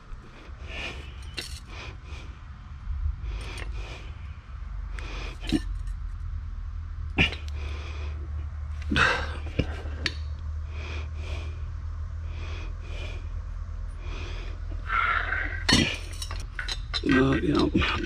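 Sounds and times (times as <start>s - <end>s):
steady low hum: 0.0s - 18.0s
soft rasps: 14.0s - 18.0s.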